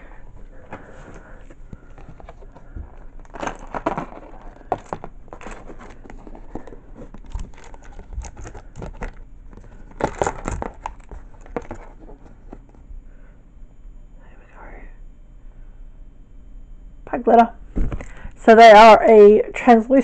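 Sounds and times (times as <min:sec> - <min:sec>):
card rustling: 0:00.6 - 0:12.8.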